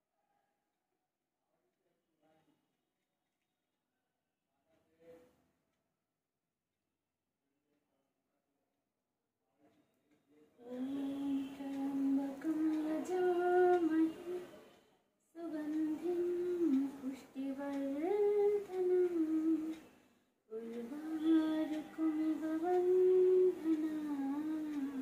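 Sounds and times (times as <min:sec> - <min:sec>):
woman humming a slow tune: 0:10.6 - 0:14.5, 0:15.4 - 0:19.8, 0:20.5 - 0:25.0.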